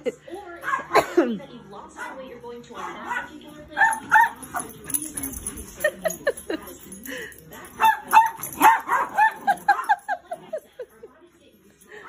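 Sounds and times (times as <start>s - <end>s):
small dogs yapping: 7.8s - 10.0s.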